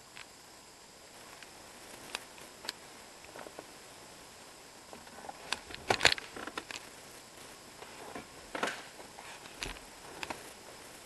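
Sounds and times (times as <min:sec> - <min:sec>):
camera handling clicks and rustles: 0:05.5 - 0:06.9.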